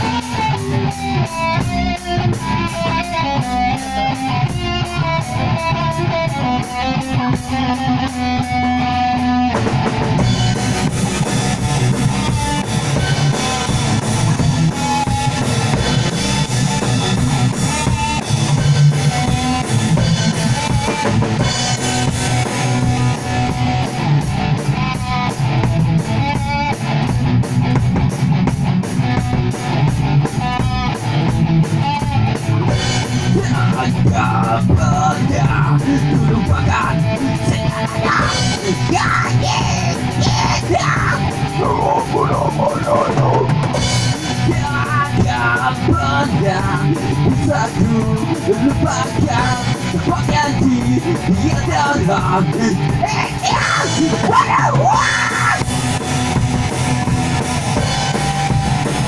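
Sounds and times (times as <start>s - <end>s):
live rock band playing: 0.0s - 59.0s
person singing: 32.6s - 55.7s.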